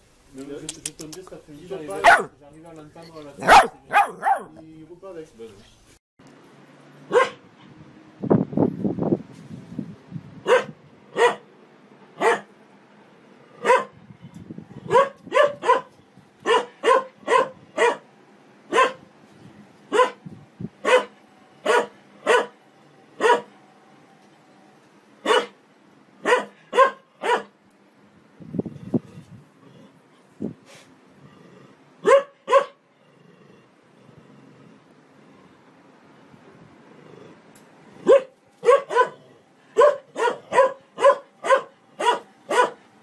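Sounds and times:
dog barking: 2.0s - 2.4s, 3.4s - 4.6s, 7.1s - 7.4s, 10.5s - 11.5s, 12.2s - 12.5s, 13.6s - 14.0s, 14.9s - 18.1s, 18.7s - 19.0s, 19.9s - 20.2s, 20.8s - 22.6s, 23.2s - 23.5s, 25.2s - 25.6s, 26.2s - 27.6s, 32.0s - 32.8s, 38.0s - 42.8s.

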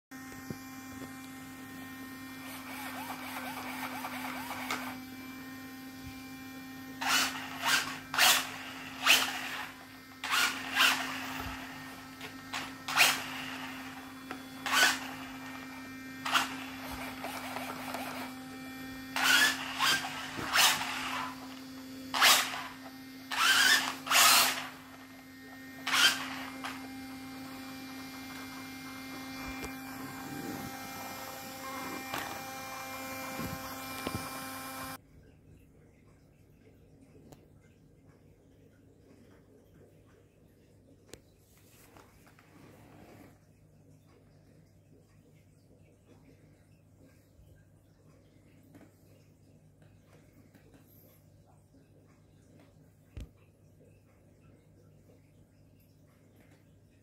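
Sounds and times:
rc truck motor revving: 0.1s - 35.0s
soft motor whir: 0.1s - 35.0s, 41.5s - 54.2s
steady low hum: 0.1s - 40.7s.

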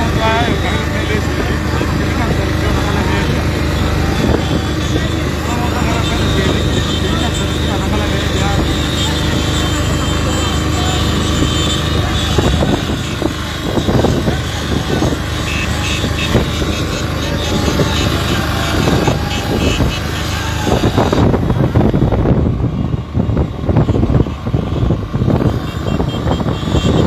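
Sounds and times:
motorcycle engines droning: 0.0s - 27.0s
wind buffeting microphone: 11.1s - 27.0s.

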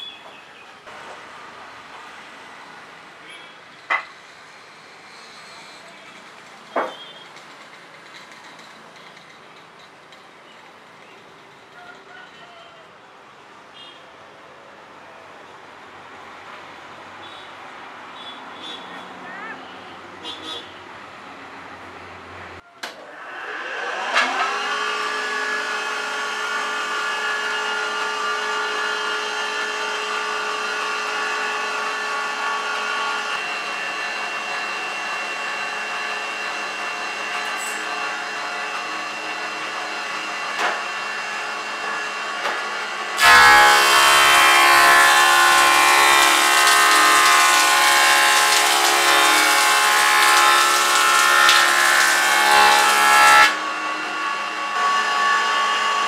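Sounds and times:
planer whining: 23.0s - 56.0s
planer cutting wood rasping: 23.1s - 56.0s.

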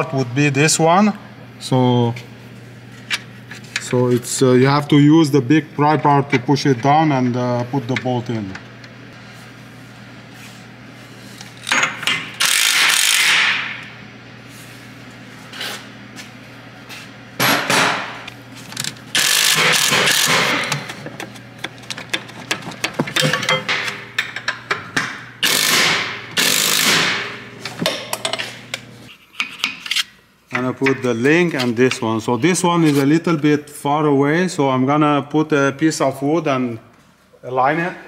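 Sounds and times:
impact wrench hammering: 11.6s - 13.8s, 17.4s - 18.2s, 19.1s - 21.0s, 22.1s - 28.2s.

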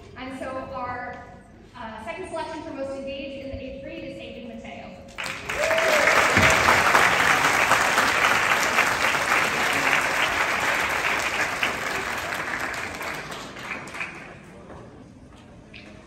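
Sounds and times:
audience applauding: 5.2s - 14.6s.

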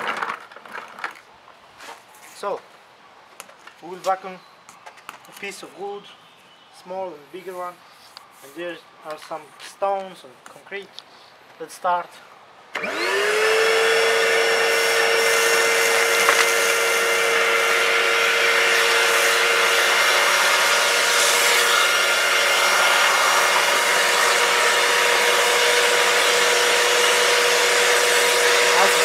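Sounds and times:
vacuum cleaner motor whine: 12.8s - 29.0s
vacuum sucking up wood chips: 12.8s - 29.0s.

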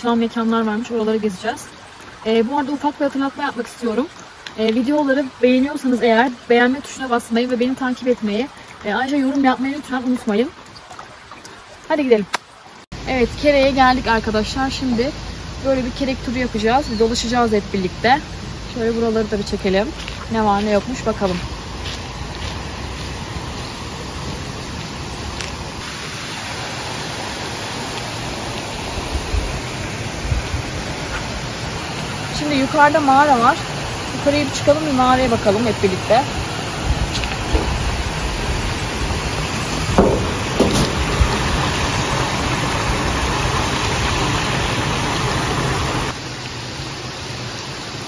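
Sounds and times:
creek water rushing: 0.0s - 48.0s
low bumps: 36.8s - 43.0s.

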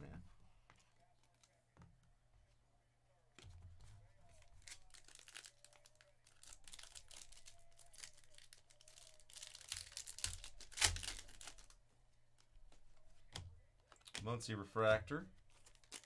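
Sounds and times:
foil wrapper crinkling and tearing: 4.4s - 11.8s, 15.5s - 16.0s.

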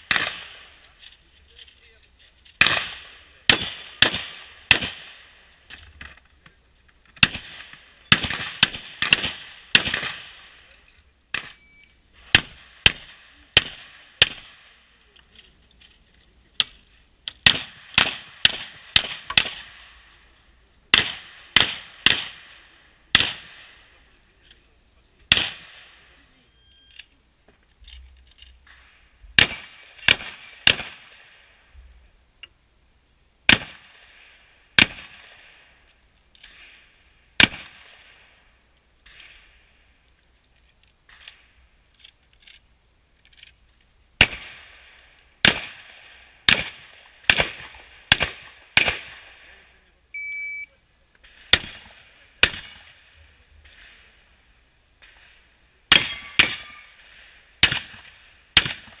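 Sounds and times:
shotgun shots with echo: 0.0s - 0.7s, 2.6s - 5.4s, 7.2s - 10.5s, 12.2s - 14.7s, 17.4s - 20.0s, 20.9s - 23.9s, 25.3s - 26.1s, 29.4s - 31.5s, 33.5s - 34.2s, 34.8s - 35.6s, 37.4s - 38.2s, 44.2s - 49.5s, 51.3s - 54.1s, 55.0s - 59.0s.

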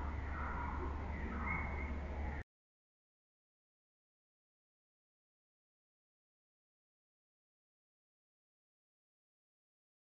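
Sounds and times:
low outdoor rumble: 0.0s - 2.4s.

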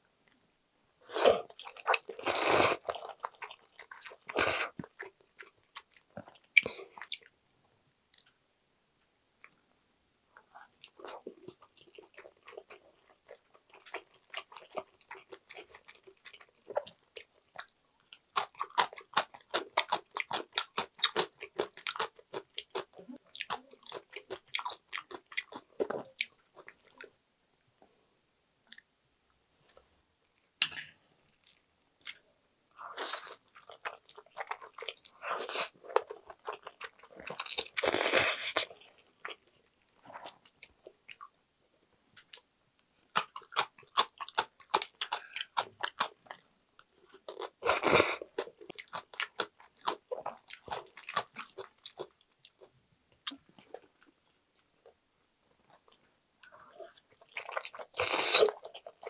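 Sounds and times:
chewing food: 1.4s - 7.4s, 10.4s - 27.2s, 31.4s - 41.4s, 43.1s - 59.0s.

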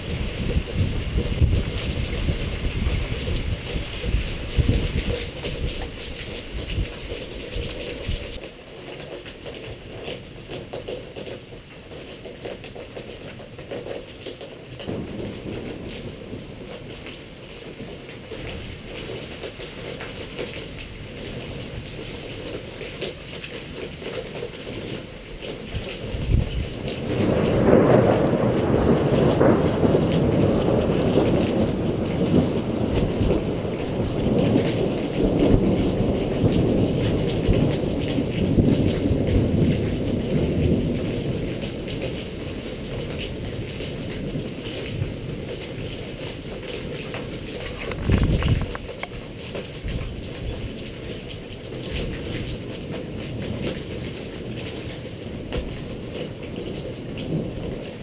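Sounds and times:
rumbling thunder: 0.0s - 8.4s, 14.8s - 19.0s, 25.8s - 47.0s, 47.6s - 58.0s
rain: 0.0s - 58.0s.

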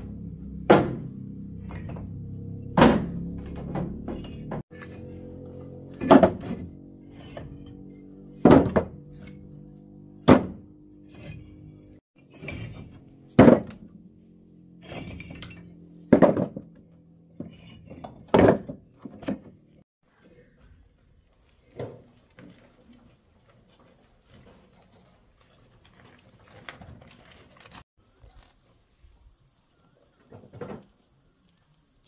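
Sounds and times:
heavy sharp thunks: 0.7s - 1.2s, 2.7s - 4.6s, 10.2s - 10.7s.

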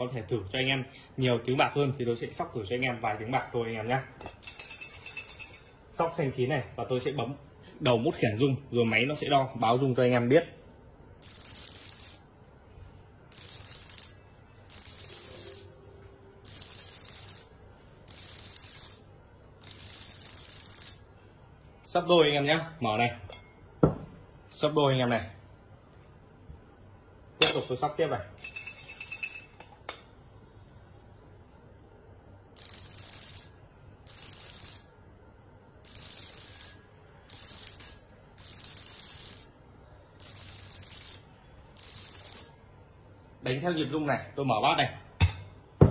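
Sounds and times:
device buzzing pulses: 11.2s - 12.2s, 13.3s - 15.8s, 16.4s - 17.5s, 18.1s - 21.1s, 32.6s - 34.9s, 35.8s - 39.5s, 40.2s - 42.6s.

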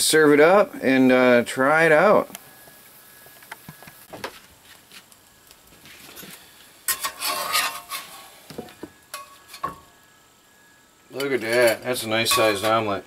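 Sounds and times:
metal spatula scraping skillet: 5.9s - 8.5s, 9.1s - 9.9s, 11.1s - 12.9s.

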